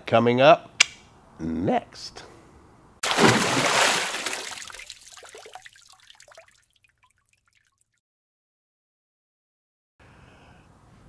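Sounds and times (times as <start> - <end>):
water splash spray: 3.0 - 6.7
water drips: 3.0 - 8.0.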